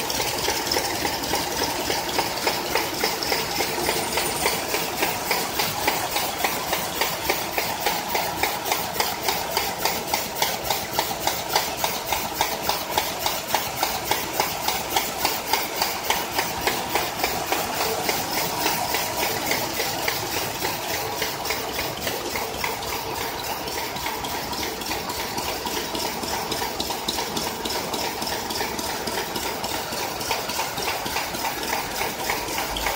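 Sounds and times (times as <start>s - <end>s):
machine whine: 0.0s - 9.9s, 10.7s - 26.7s.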